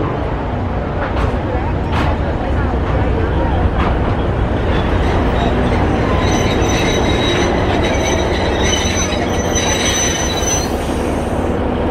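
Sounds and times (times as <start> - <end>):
train low rumble: 0.0 - 11.9
train wheels squealing: 4.6 - 11.4.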